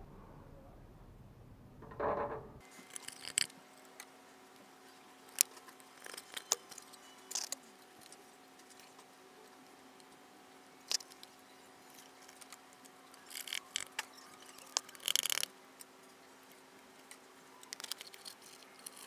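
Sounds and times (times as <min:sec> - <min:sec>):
faint steady hum: 0:00.0 - 0:19.0
small metal objects clinking: 0:01.8 - 0:03.5.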